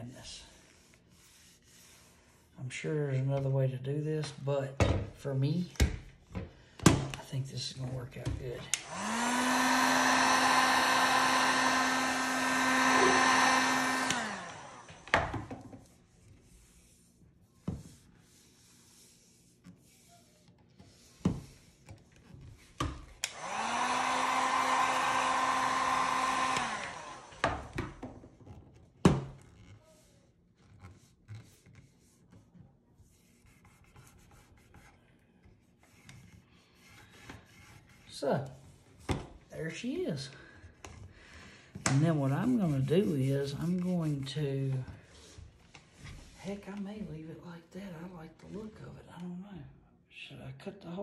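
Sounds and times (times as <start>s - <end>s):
heat gun blowing: 8.6s - 15.3s, 23.2s - 27.8s.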